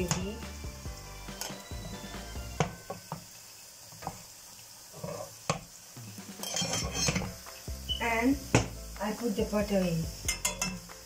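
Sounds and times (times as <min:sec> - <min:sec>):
hot pans sizzling: 0:00.0 - 0:11.0
metal spoon scraping pans: 0:06.3 - 0:07.4, 0:10.3 - 0:10.8.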